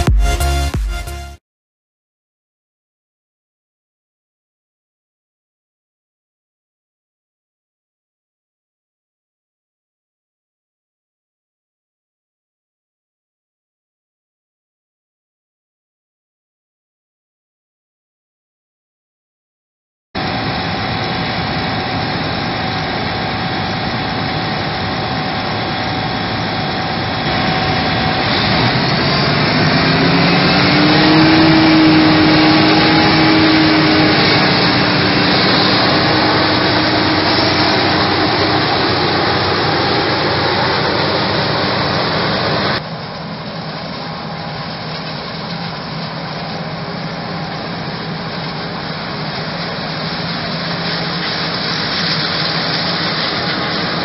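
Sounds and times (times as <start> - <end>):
rising machine whine: 20.2 - 42.8
forage harvester running: 20.2 - 54.0
tractor running: 20.2 - 54.0.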